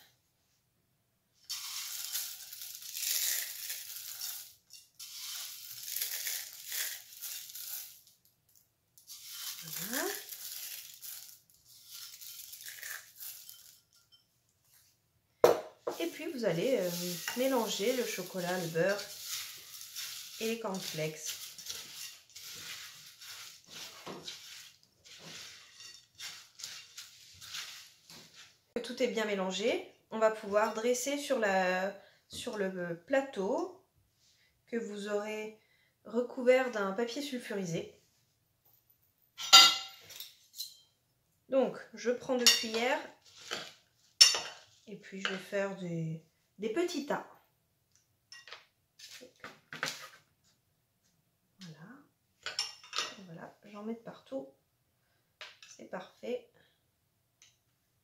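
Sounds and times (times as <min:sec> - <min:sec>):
spatula scraping a metal saucepan: 0:01.5 - 0:07.9, 0:09.1 - 0:14.2, 0:16.0 - 0:28.0
cornflakes crushed and crunching: 0:01.5 - 0:13.9, 0:16.2 - 0:28.4.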